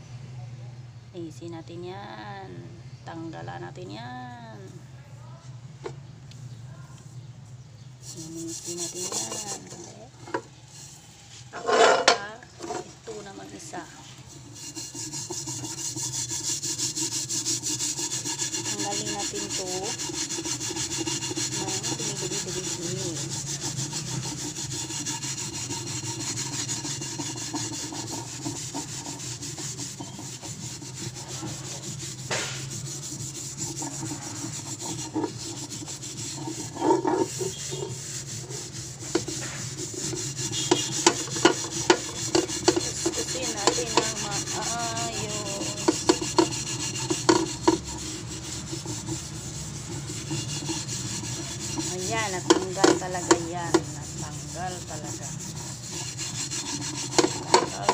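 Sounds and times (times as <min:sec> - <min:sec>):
steel wool scrubbing metal pan: 0:08.0 - 0:57.9
sharp knocks: 0:32.2 - 0:32.8.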